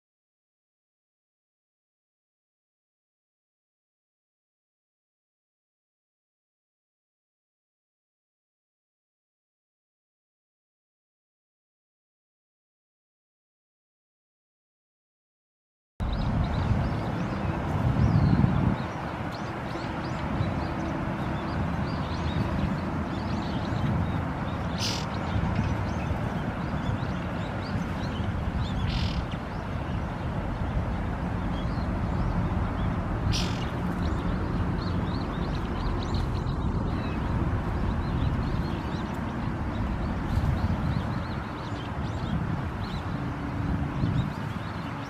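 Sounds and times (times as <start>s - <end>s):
bird chirps: 16.0s - 30.3s, 31.4s - 43.1s.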